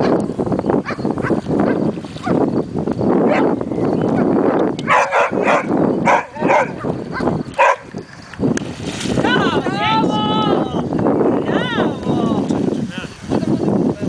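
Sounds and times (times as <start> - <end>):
dog barking and yelping: 4.9 - 7.8.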